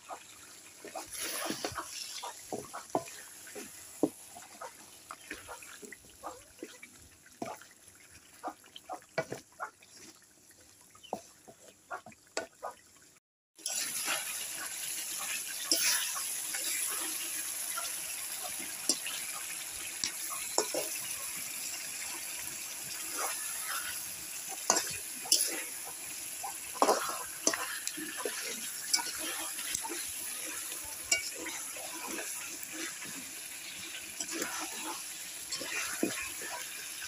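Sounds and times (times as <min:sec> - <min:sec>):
fish frying in spice paste: 0:00.0 - 0:13.0, 0:13.6 - 0:37.0
spatula scraping pan: 0:00.8 - 0:05.6, 0:13.6 - 0:37.0.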